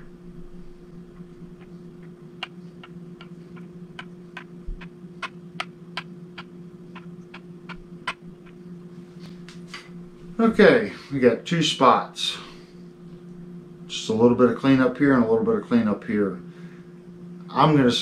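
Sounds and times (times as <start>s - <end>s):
low steady hum: 0.0s - 18.0s
fret rocker clicking on frets: 1.1s - 8.6s.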